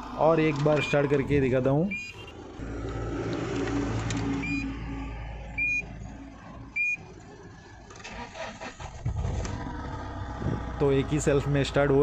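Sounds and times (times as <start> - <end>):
dashboard warning chime beeps: 0.6 - 2.4, 4.4 - 4.7, 5.6 - 5.9, 6.8 - 7.1.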